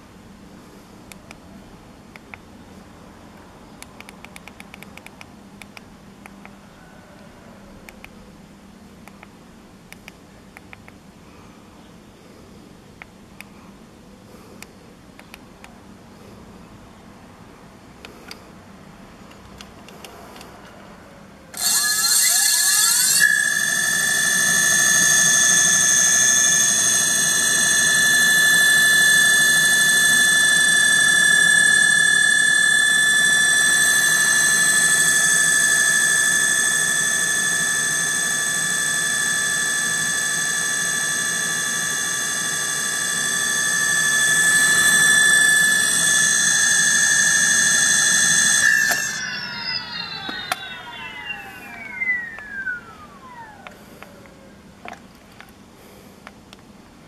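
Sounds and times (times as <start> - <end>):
electric motor whine: 21.5 - 54.4.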